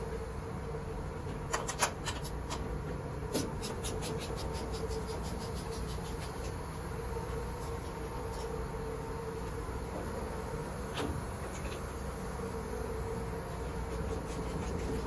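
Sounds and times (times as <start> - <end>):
industrial tumble dryers humming: 0.0 - 15.0.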